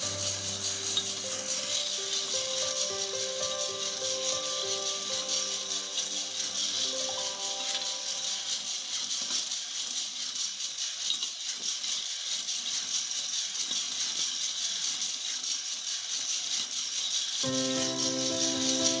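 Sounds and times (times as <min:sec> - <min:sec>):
coffee beans rattling in a drum: 0:00.0 - 0:19.0
steady hiss: 0:00.0 - 0:19.0.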